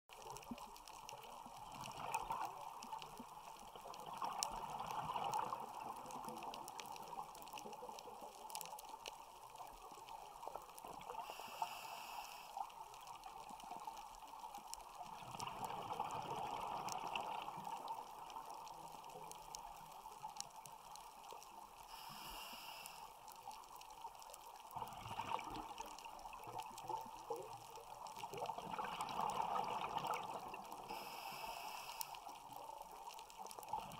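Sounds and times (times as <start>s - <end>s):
exhaled bubbles gurgling: 0.1s - 11.5s, 14.9s - 20.1s, 24.6s - 31.4s, 32.4s - 33.9s
regulator inhale hiss: 11.1s - 12.7s, 21.8s - 23.3s, 30.9s - 32.4s.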